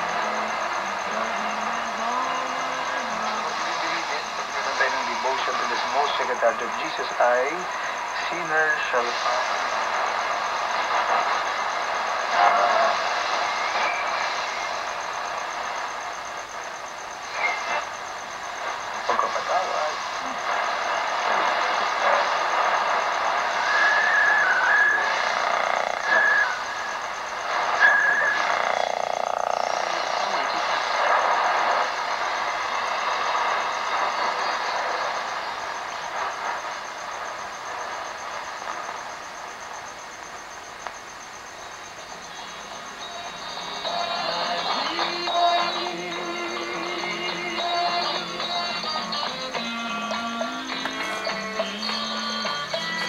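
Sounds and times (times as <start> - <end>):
radio static and hiss: 0.0 - 53.0
radio whistles: 0.0 - 53.0
snatches of radio station signal: 0.0 - 53.0
faint high-pitched whistle: 13.4 - 14.9, 23.6 - 25.2, 26.0 - 26.9, 27.7 - 28.5.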